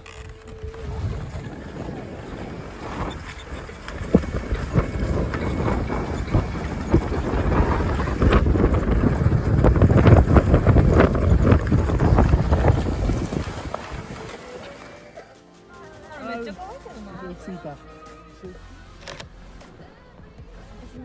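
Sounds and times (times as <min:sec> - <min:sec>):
wind rumbling on microphone: 0:00.0 - 0:14.8
skis scraping over snow: 0:00.0 - 0:18.4.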